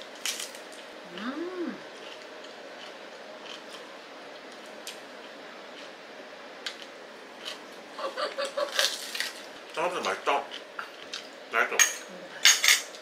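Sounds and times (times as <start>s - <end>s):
room hum: 0.0s - 13.0s
crisp chewing: 1.9s - 6.0s, 8.4s - 11.3s.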